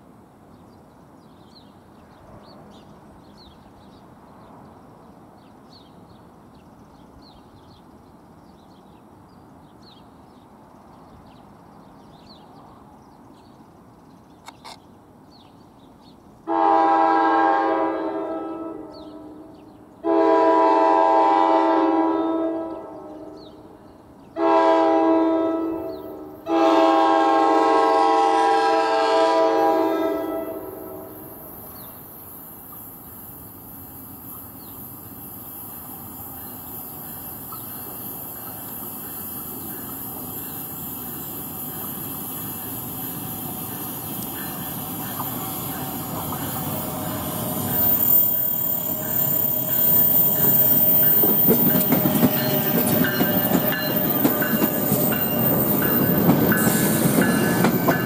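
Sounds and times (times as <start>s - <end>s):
train horn blasts: 16.5s - 23.6s, 24.4s - 31.4s
faint bird chirps: 31.1s - 57.6s.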